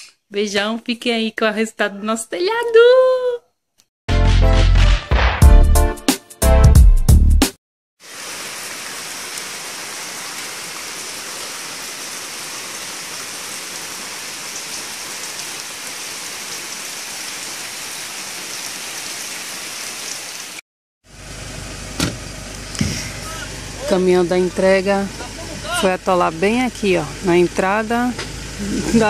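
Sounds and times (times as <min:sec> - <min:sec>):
heavy rain: 0:08.0 - 0:20.6, 0:22.6 - 0:29.0
outdoor background: 0:08.0 - 0:29.0.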